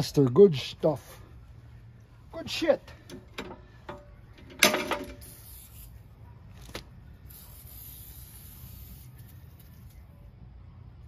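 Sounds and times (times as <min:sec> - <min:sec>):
aerosol can spraying: 0:05.2 - 0:06.0, 0:07.2 - 0:10.0.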